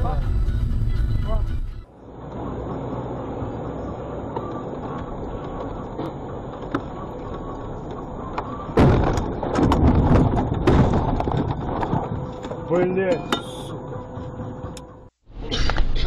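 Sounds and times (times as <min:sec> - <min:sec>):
vehicle crash: 0:00.0 - 0:16.0
vehicle road noise: 0:00.0 - 0:16.0
knocks and bangs against guardrail: 0:08.4 - 0:12.2.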